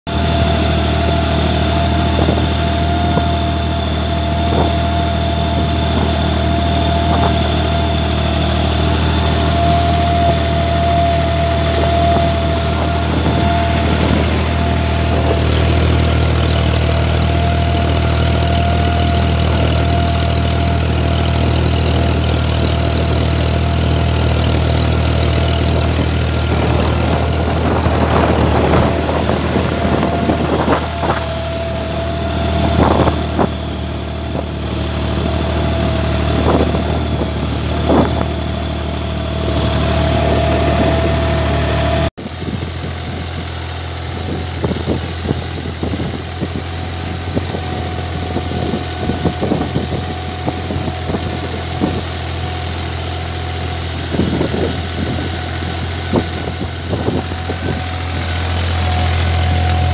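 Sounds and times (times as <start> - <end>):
tractor diesel engine running: 0.0 - 59.9
thin steady whine: 0.1 - 42.1.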